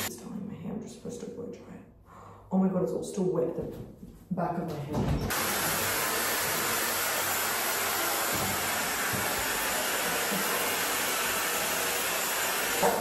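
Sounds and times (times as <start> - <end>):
hair dryer blowing: 5.3 - 13.0.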